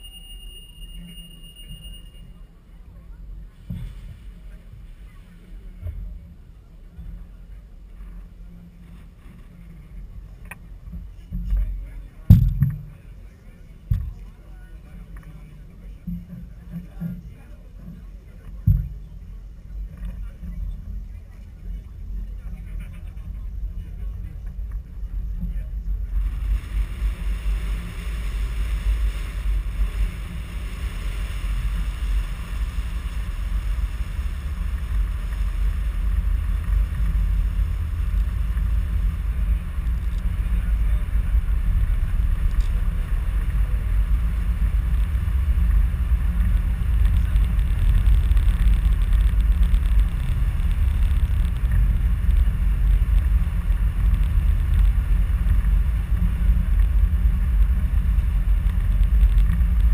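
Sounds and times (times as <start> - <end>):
wind buffeting microphone: 18.0 - 59.9.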